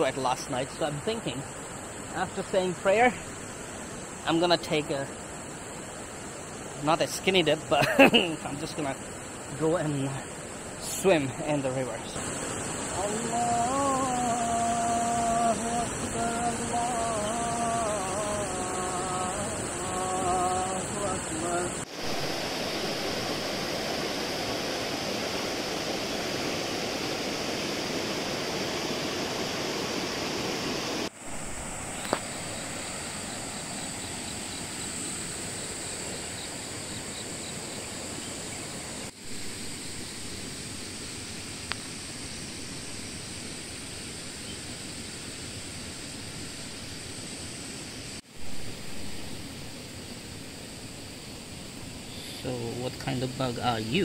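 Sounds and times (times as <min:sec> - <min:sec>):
high-pitched hiss: 0:00.0 - 0:54.0
river rushing over rocks: 0:08.4 - 0:37.4.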